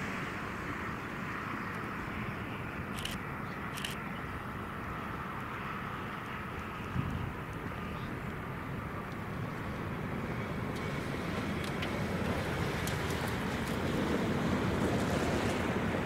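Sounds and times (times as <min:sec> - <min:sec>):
jet engines rumbling with whine: 0:00.0 - 0:16.0.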